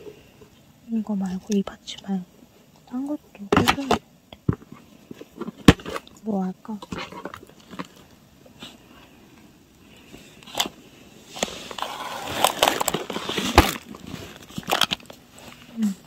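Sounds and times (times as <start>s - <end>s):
plastic packaging crinkling: 11.4s - 15.8s.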